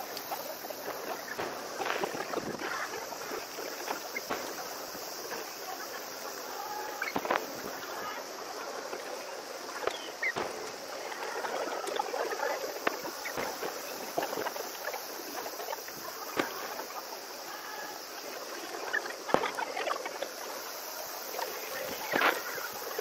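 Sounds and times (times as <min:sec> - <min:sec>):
fireworks bangs: 0:00.0 - 0:08.6, 0:09.8 - 0:17.0, 0:19.2 - 0:20.2
crowd noise: 0:00.0 - 0:23.0.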